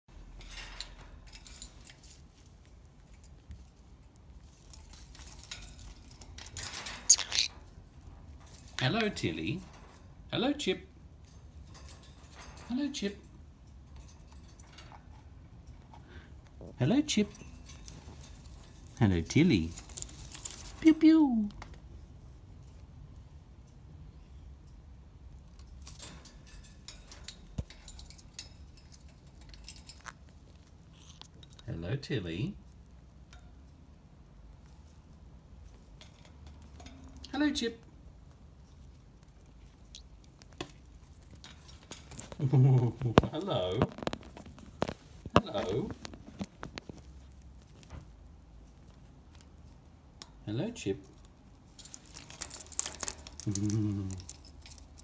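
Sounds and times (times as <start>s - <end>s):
clicks and clinks in metal cage: 0.3s - 2.5s, 4.4s - 7.6s, 11.2s - 15.9s, 17.3s - 20.8s, 25.5s - 31.7s, 36.0s - 37.3s, 51.7s - 55.0s.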